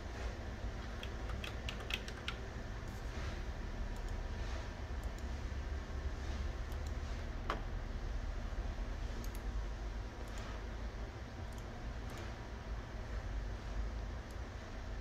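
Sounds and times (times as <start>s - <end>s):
steady low hum: 0.0s - 15.0s
computer mouse clicks: 1.0s - 2.4s, 3.9s - 4.2s, 5.0s - 5.3s, 6.7s - 7.6s, 9.2s - 9.5s.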